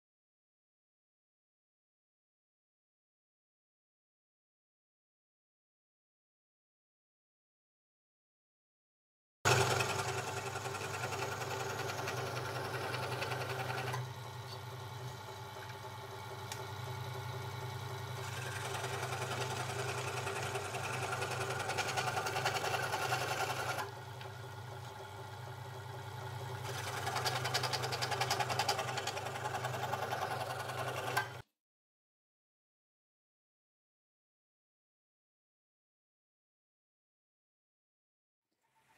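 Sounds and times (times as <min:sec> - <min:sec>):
scroll saw cutting wood: 0:09.5 - 0:25.2, 0:26.5 - 0:31.4.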